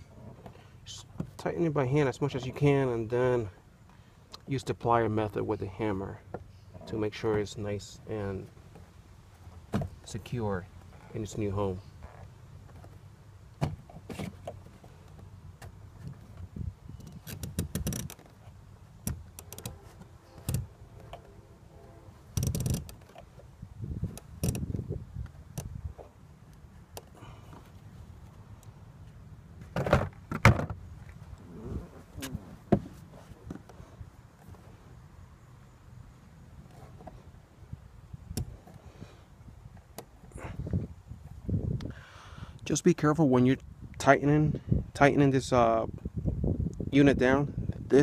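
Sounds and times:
plastic parts clicking and knocking: 0:22.3 - 0:23.3.

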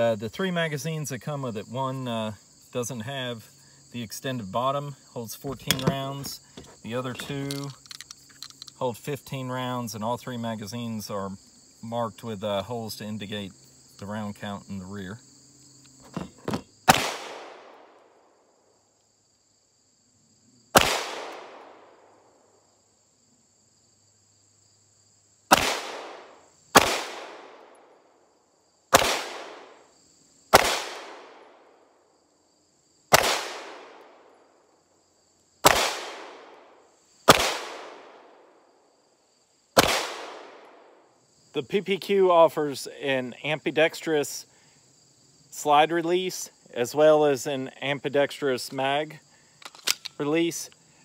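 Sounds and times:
pistol shots with ringing echo: 0:16.9 - 0:17.9, 0:20.8 - 0:22.1, 0:25.5 - 0:27.7, 0:28.9 - 0:29.8, 0:30.5 - 0:31.7, 0:33.1 - 0:34.3, 0:35.6 - 0:36.7, 0:37.3 - 0:38.4, 0:39.8 - 0:40.9.

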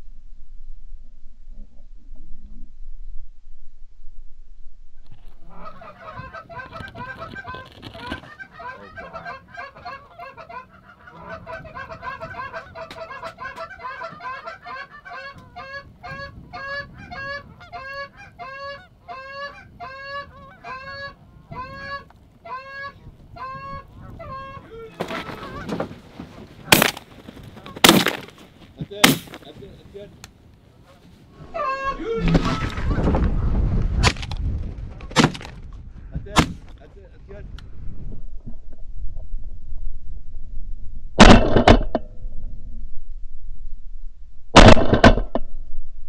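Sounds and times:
geese honking: 0:05.4 - 0:27.0, 0:30.8 - 0:33.0
loud shotgun shot: 0:29.0 - 0:29.4, 0:41.2 - 0:41.8, 0:44.6 - 0:45.2.

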